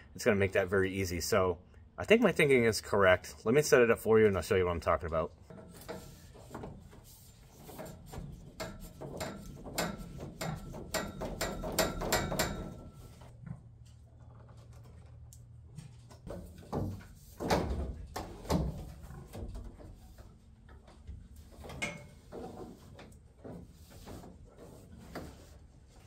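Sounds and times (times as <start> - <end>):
knocks: 8.6 - 12.9.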